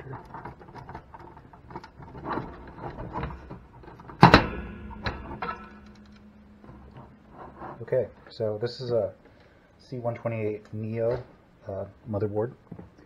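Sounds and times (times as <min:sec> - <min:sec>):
small clicks and rustles: 0:00.0 - 0:04.2
loud ringing knock: 0:04.2 - 0:08.2.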